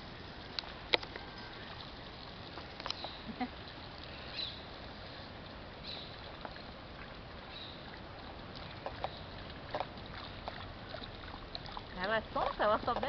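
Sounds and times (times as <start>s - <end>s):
water running into stone basin: 0.4s - 13.0s
dog drinking water: 7.9s - 13.0s.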